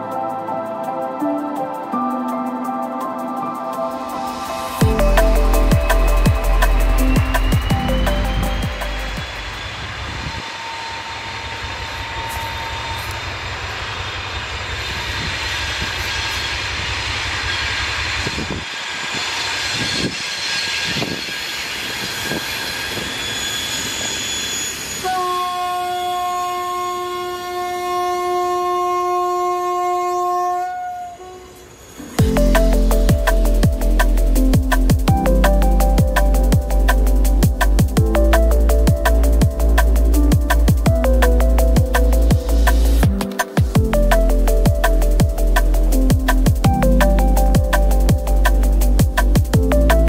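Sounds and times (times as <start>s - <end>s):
locomotive horn blast: 25.0s - 31.7s.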